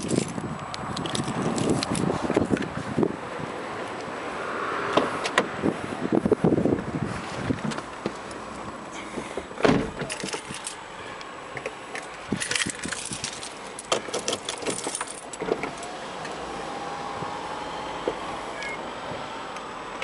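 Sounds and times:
keys jingling: 0.0s - 0.4s, 10.0s - 10.8s, 12.0s - 15.9s
heavy thump: 9.2s - 10.1s.

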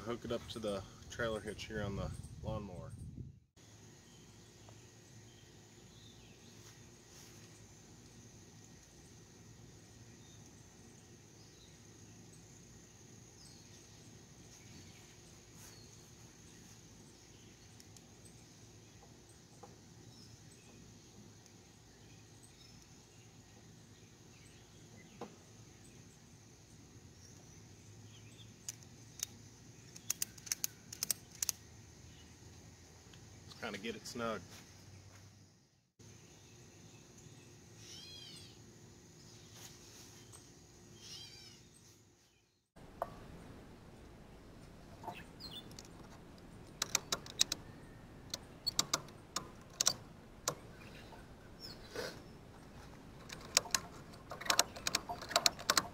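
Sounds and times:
insects droning: 3.6s - 42.0s
ratchet strap clicking: 28.6s - 31.6s, 46.6s - 47.7s, 48.3s - 50.7s, 53.2s - 55.9s.

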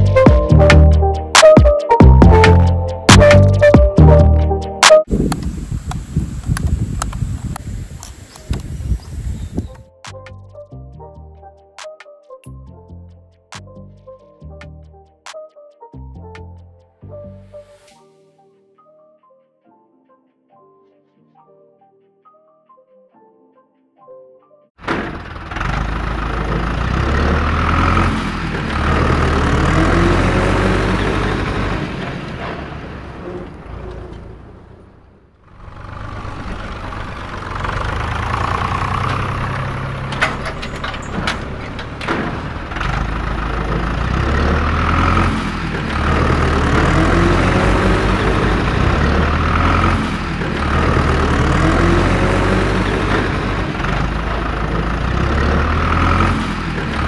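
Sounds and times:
sharp clicks: 4.8s - 8.7s
tractor engine revving: 24.8s - 57.0s.

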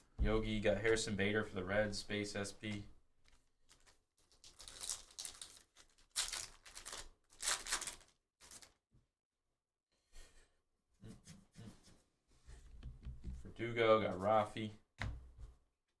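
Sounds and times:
cards rustling in hands: 2.6s - 8.8s
wrapper tearing and crinkling: 3.3s - 8.8s.

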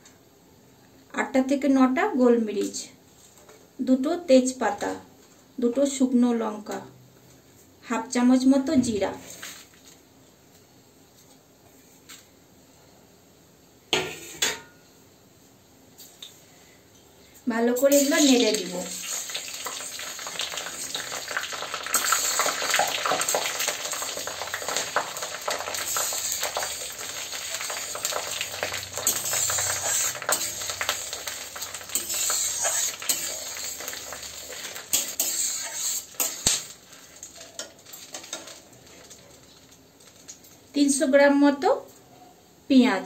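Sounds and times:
spices sizzling in oil: 17.6s - 40.5s
spatula scraping and clinking pan: 29.0s - 36.6s.

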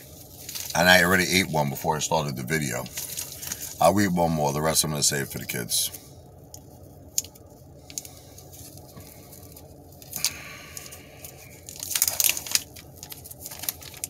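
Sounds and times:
plastic wrapper crinkling and tearing: 0.0s - 1.5s, 2.7s - 4.1s, 6.5s - 14.0s.

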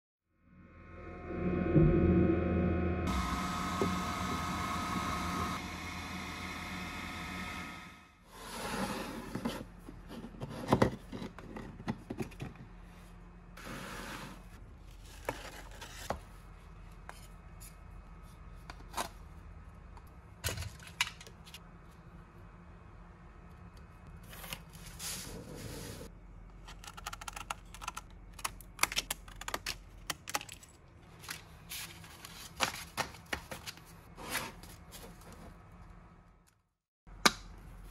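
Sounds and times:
steady hum with whining tones: 0.4s - 8.2s.

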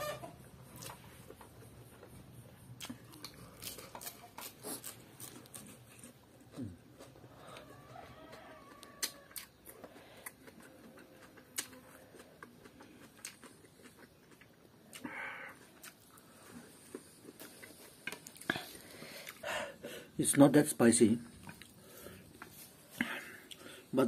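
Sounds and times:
soft chewing: 0.4s - 20.5s, 21.2s - 23.9s
crunchy cucumber bite: 0.7s - 7.4s, 8.2s - 19.4s.

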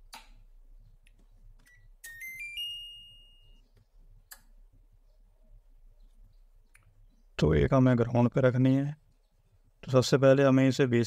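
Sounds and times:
sharp clicks: 4.2s - 4.6s.

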